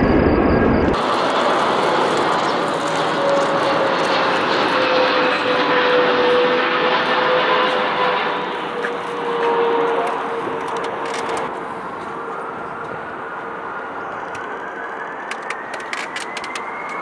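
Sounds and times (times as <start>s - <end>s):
deep rumble: 0.0s - 6.4s
jet engines roaring with whine: 0.0s - 17.0s.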